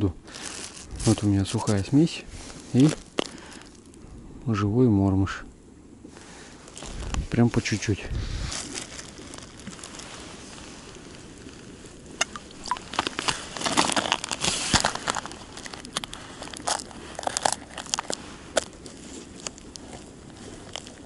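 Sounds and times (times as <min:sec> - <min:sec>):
plastic bag crinkling: 0:00.3 - 0:04.0, 0:08.5 - 0:21.0
cardboard box being opened: 0:12.8 - 0:18.7.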